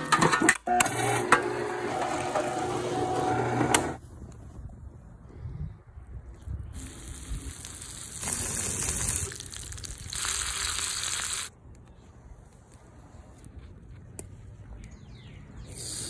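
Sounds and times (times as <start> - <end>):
bacon sizzling on griddle: 6.8 - 11.5.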